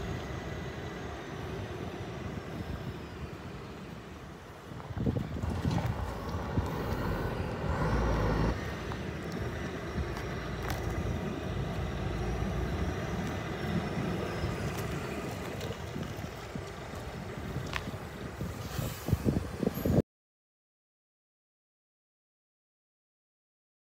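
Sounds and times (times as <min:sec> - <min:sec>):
truck diesel engine running: 0:00.0 - 0:18.5.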